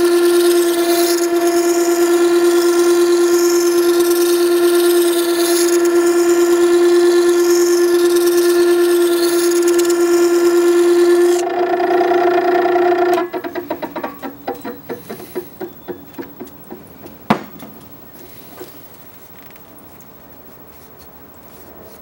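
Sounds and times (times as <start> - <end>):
sharpener motor whining: 0.0 - 14.9
blade grinding on stone wheel: 0.0 - 15.9.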